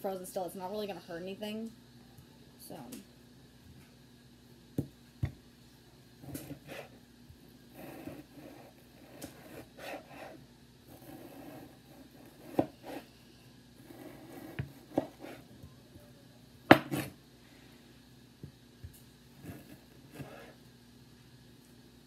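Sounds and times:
knife knocking on cutting board: 0:16.7 - 0:17.1.

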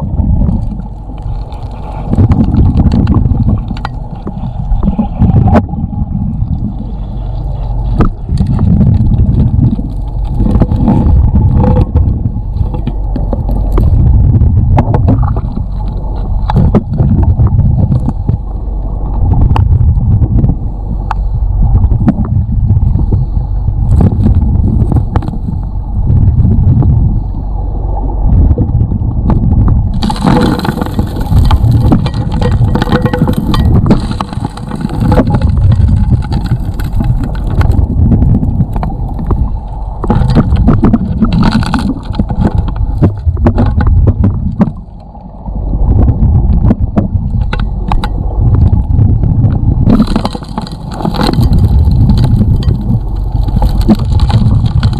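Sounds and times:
muffled pulsing dredge rumble: 0:00.0 - 0:54.9
gravel and stones knocking: 0:00.5 - 0:05.6, 0:07.9 - 0:18.3, 0:29.9 - 0:44.8, 0:47.0 - 0:54.9.

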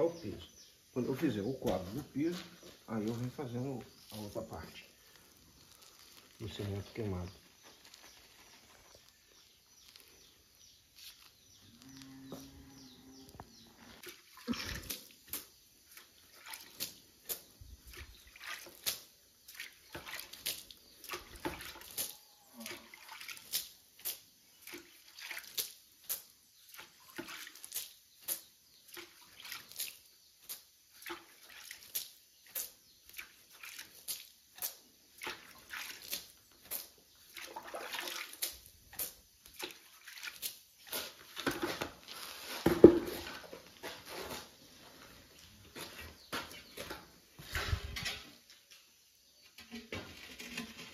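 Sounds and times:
trowel scraping wet mortar: 0:38.3 - 0:44.6.

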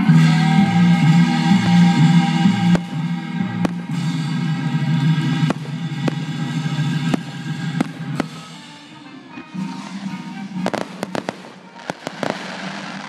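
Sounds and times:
fireworks bangs: 0:00.0 - 0:13.0
music playing: 0:00.0 - 0:13.0.

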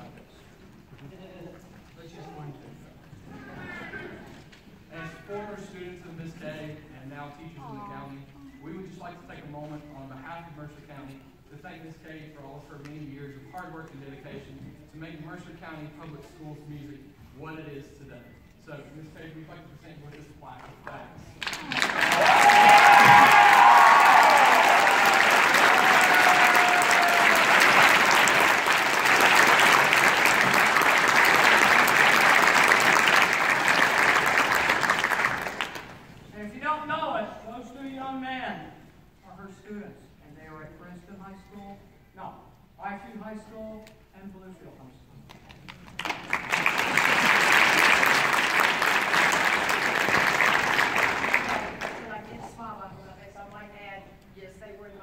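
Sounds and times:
audience applauding: 0:21.4 - 0:36.1, 0:45.7 - 0:52.1.

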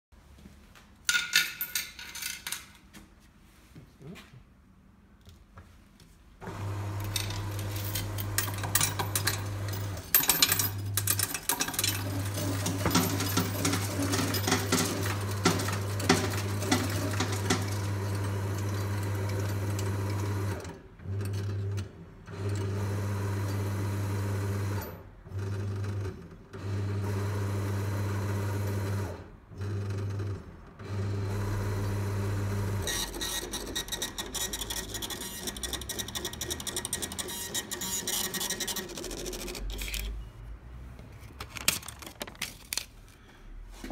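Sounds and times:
coins clattering: 0:01.1 - 0:02.8, 0:07.0 - 0:20.2, 0:34.0 - 0:40.2
coin counting machine motor hum: 0:06.4 - 0:40.2
receipt printer ticking: 0:32.9 - 0:39.8.

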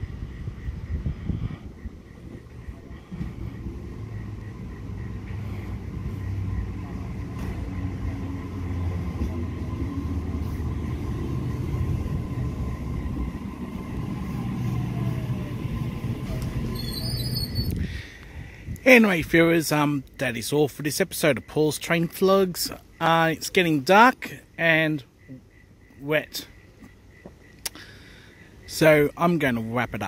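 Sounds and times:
train rumbling on rails: 0:00.0 - 0:25.8
train brakes whining: 0:01.6 - 0:18.2.

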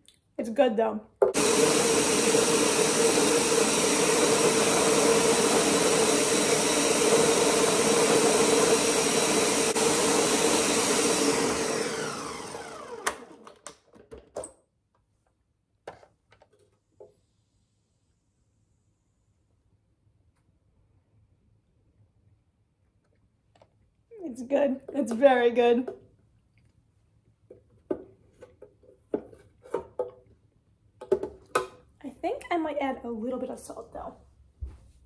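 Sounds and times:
blender running at high speed: 0:01.3 - 0:13.5.

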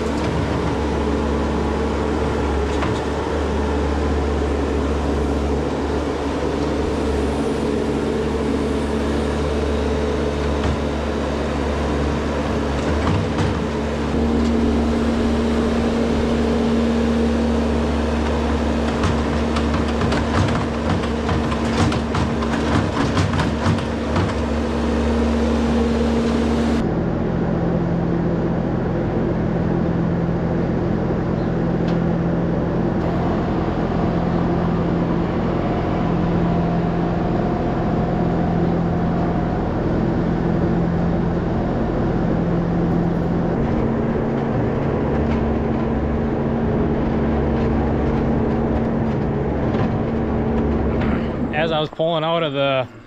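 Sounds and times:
loader engine running: 0:00.0 - 0:53.0
tractor engine running: 0:00.0 - 0:53.0
knocks and clatter: 0:12.7 - 0:14.5, 0:18.2 - 0:24.8, 0:42.9 - 0:52.1.

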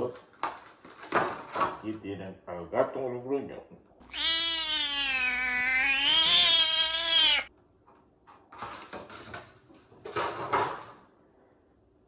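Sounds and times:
cat meowing: 0:04.0 - 0:07.5.

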